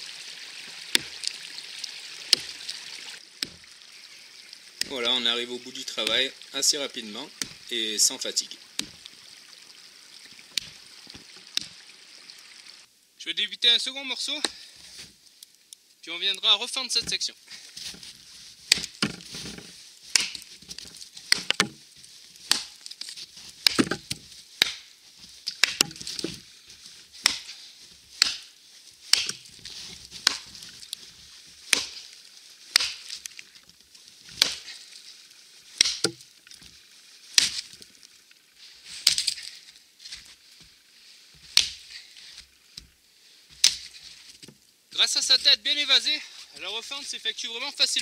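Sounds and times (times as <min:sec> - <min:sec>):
axe chopping into log: 0:01.0 - 0:01.2, 0:02.3 - 0:02.5, 0:03.4 - 0:03.6, 0:08.8 - 0:09.0, 0:18.7 - 0:20.5, 0:21.3 - 0:21.8, 0:22.5 - 0:22.8, 0:23.6 - 0:24.9, 0:25.5 - 0:26.4, 0:27.2 - 0:27.5, 0:28.2 - 0:28.5, 0:29.1 - 0:29.5, 0:30.2 - 0:30.5, 0:31.7 - 0:32.0, 0:32.7 - 0:33.1, 0:34.4 - 0:34.7, 0:35.8 - 0:36.2, 0:37.4 - 0:37.7, 0:41.6 - 0:41.9, 0:43.6 - 0:43.9.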